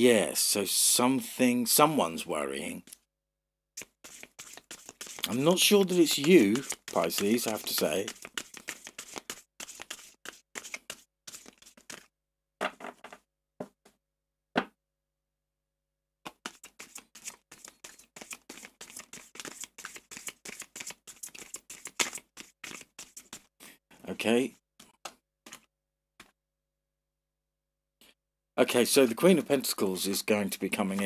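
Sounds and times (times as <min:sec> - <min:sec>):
cards shuffled by hand: 0:03.8 - 0:12.1, 0:16.3 - 0:23.5, 0:24.8 - 0:26.3.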